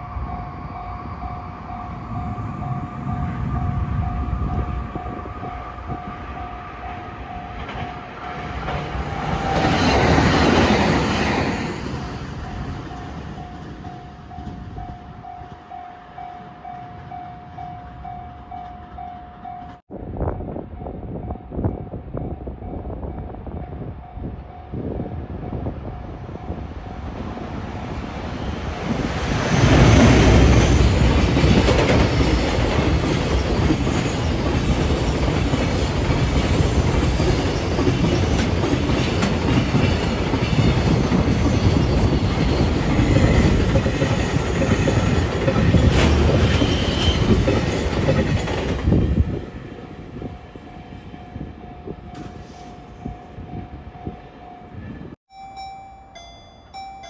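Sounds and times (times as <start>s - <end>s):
freight train passing: 0.0s - 57.0s
wheels clattering over rail joints: 29.2s - 49.2s.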